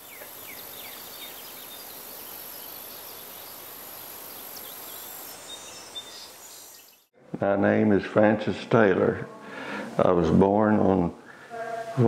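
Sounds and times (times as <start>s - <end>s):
steady hiss: 0.0s - 7.0s
high insect-like tone: 0.0s - 7.1s.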